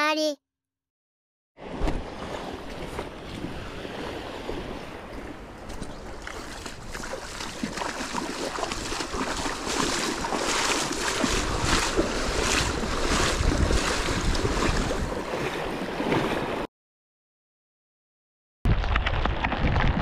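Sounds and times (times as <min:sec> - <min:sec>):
sea surf washing on shore: 0:01.6 - 0:16.7
wind buffeting microphone: 0:02.7 - 0:15.8.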